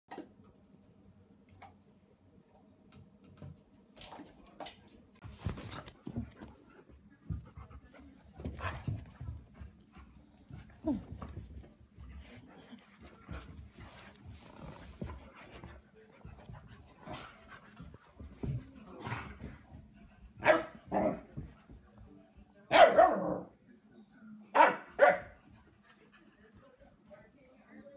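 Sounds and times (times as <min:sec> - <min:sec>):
dogs scuffling: 0:04.0 - 0:21.9.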